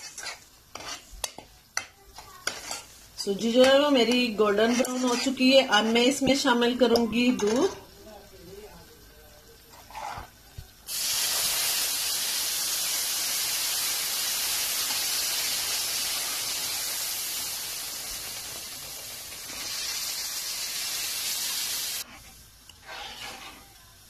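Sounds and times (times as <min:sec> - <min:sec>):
milk hissing in hot pan: 0:07.9 - 0:24.0.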